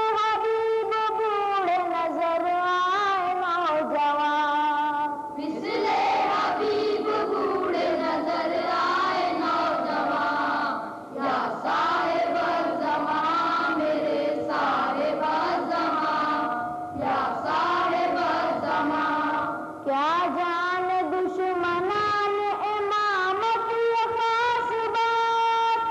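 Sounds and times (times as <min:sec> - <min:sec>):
boys' choir singing in unison: 0:05.4 - 0:21.6.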